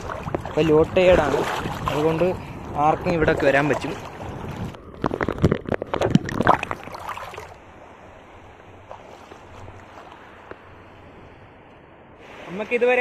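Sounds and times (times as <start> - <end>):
water washing: 0.0 - 7.6
person wading through water: 0.0 - 11.0.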